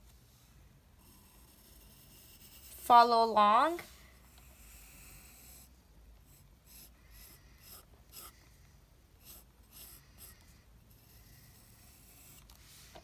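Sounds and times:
pencil scratching on paper: 1.0 - 3.1, 4.4 - 8.5, 9.2 - 13.0.

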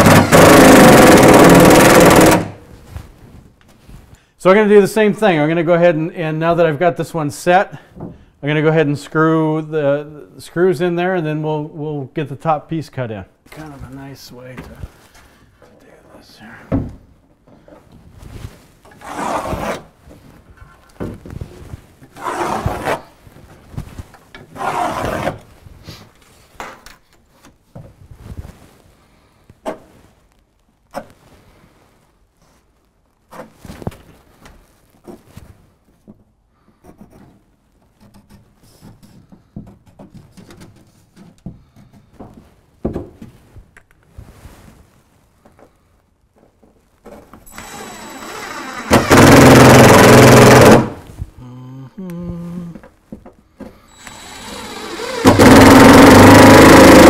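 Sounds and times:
cordless impact driver running: 0.0 - 2.5, 47.5 - 51.0, 54.0 - 57.0
level and pencil scraping board: 18.9 - 20.0, 22.1 - 23.1, 24.5 - 25.4.

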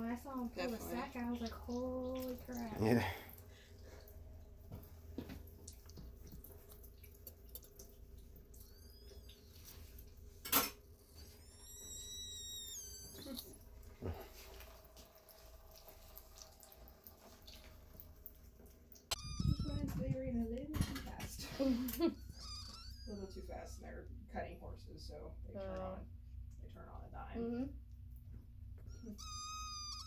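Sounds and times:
puppies squealing: 8.6 - 9.8, 11.0 - 13.5, 19.1 - 19.9, 22.0 - 23.7, 28.9 - 30.0.

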